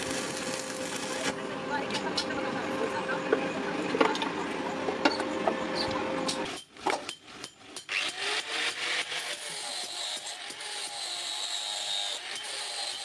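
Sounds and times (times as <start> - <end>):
arc welder crackling: 0.0 - 2.3.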